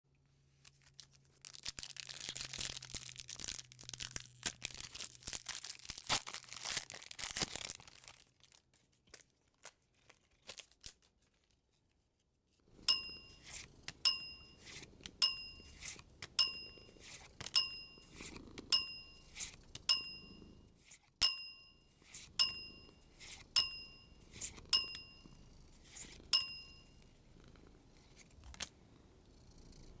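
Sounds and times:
foil wrapper tearing and crinkling: 0:00.6 - 0:11.6
bright ding: 0:12.9 - 0:20.6, 0:21.2 - 0:25.5, 0:26.3 - 0:27.0.

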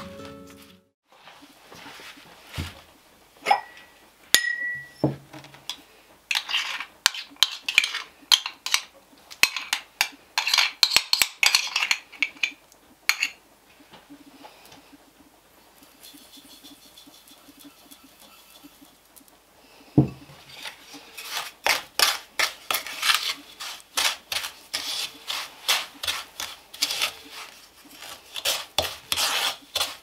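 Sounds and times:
ceramic dishes clinking and knocking: 0:04.4 - 0:05.2
clicks and scrapes in bowl: 0:05.7 - 0:13.4, 0:20.5 - 0:30.0.

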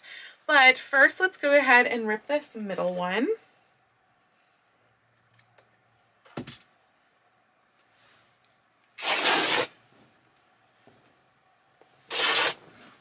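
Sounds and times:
fabric ripping: 0:09.0 - 0:09.8, 0:12.1 - 0:12.6.

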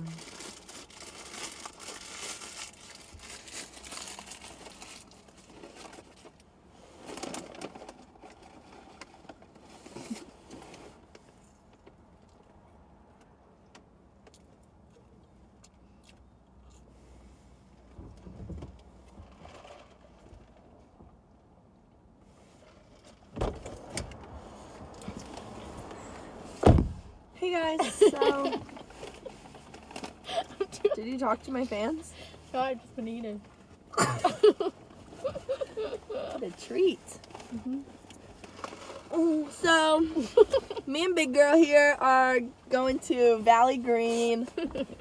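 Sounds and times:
paper wrapper rustling and crinkling: 0:00.0 - 0:06.4.

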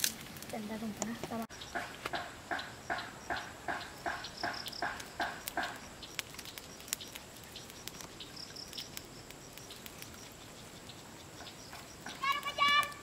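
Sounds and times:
wood fire crackling: 0:00.0 - 0:13.0.

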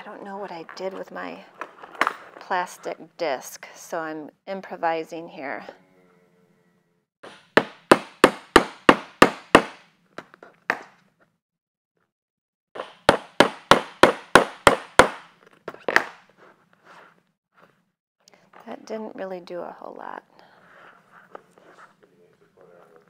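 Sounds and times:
mallet knocking on hole punch: 0:07.2 - 0:09.8.

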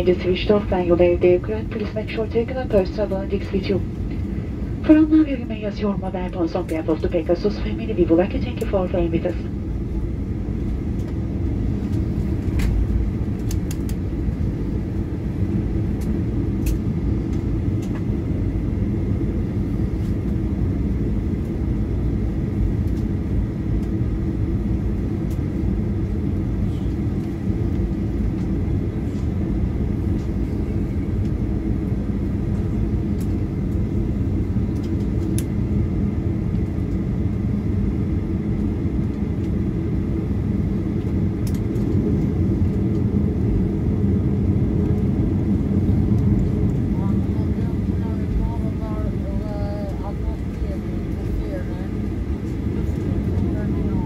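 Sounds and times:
faint steady whine: 0:00.0 - 0:54.0
jet engine low rumble: 0:00.0 - 0:54.0.

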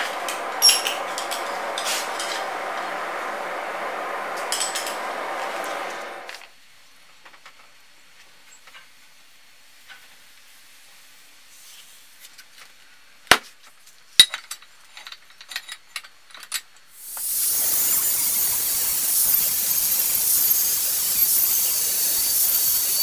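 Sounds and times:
angle grinder cutting steel: 0:00.0 - 0:06.4, 0:17.1 - 0:23.0.

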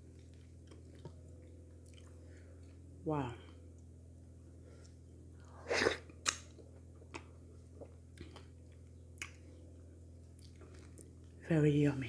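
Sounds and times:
soft chewing clicks: 0:00.0 - 0:02.8, 0:06.2 - 0:09.6, 0:10.2 - 0:11.4
steady low hum: 0:00.0 - 0:12.0
wet mouth smack: 0:06.2 - 0:06.5.

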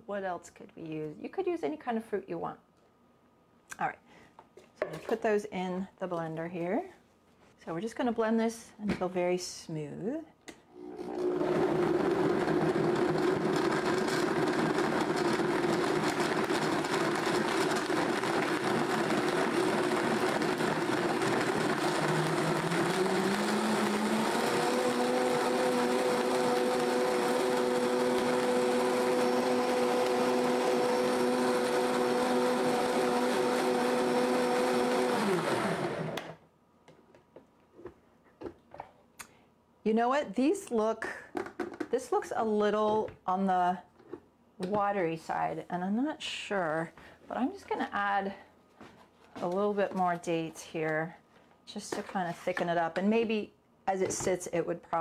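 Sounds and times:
blender motor running: 0:10.7 - 0:36.4.

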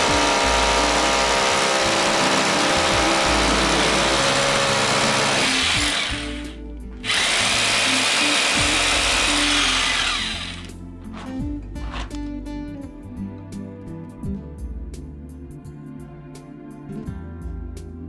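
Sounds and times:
rotary hammer drilling concrete: 0:00.0 - 0:12.2
background music: 0:00.0 - 0:18.0.

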